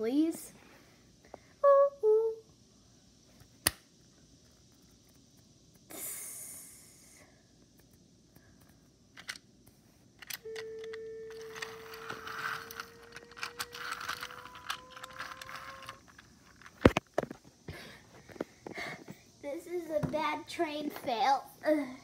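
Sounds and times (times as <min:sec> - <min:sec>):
plastic toy cars clicking and rattling: 0:09.2 - 0:09.4, 0:10.2 - 0:17.3
toy train motor whirring: 0:09.2 - 0:09.4, 0:10.2 - 0:17.0.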